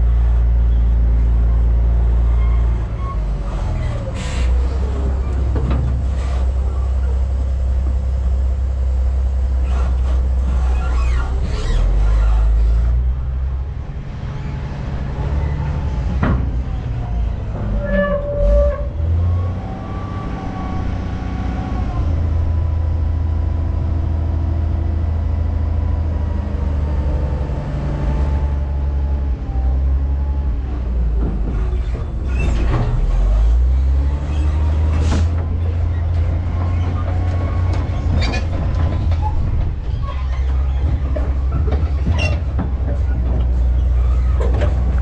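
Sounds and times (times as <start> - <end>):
truck engine rumbling: 0.0 - 45.0
knocks and rattles: 16.0 - 18.3, 34.5 - 45.0.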